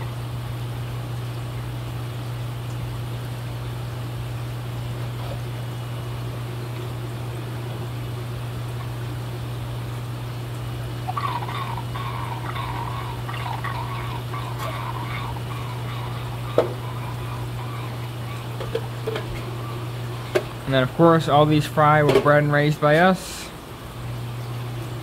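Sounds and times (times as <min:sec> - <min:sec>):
steady low hum: 0:00.0 - 0:25.0
water gurgling and splashing: 0:10.2 - 0:21.5.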